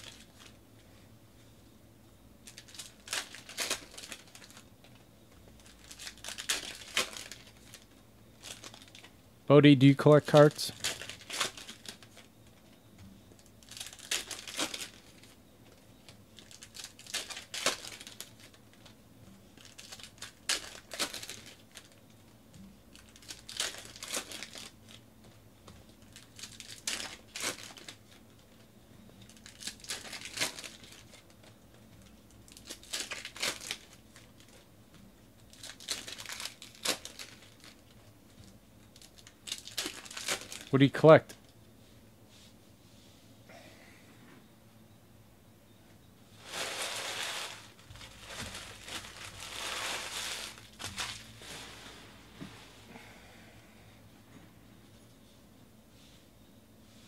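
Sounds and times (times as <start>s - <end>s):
trading cards rustling: 46.4s - 51.4s.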